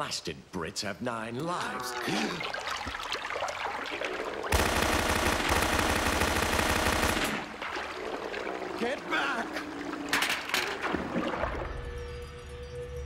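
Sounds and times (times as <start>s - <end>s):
cartoon submachine gun fire: 4.5s - 7.5s.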